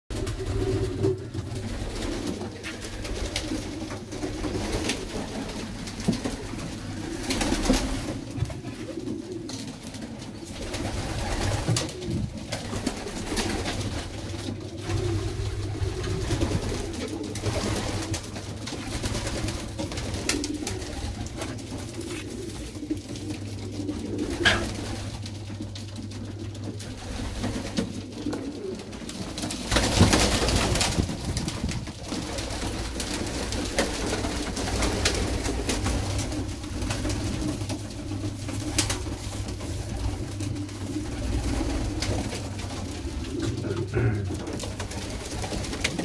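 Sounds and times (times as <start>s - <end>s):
pigeons cooing: 0.1s - 46.0s
steady low hum: 9.8s - 46.0s.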